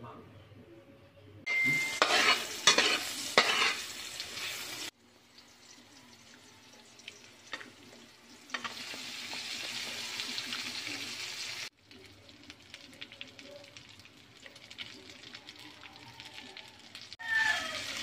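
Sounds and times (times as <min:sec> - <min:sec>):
garlic sizzling in hot oil: 0:01.5 - 0:18.0
metal spoon scraping a wok: 0:01.6 - 0:04.9.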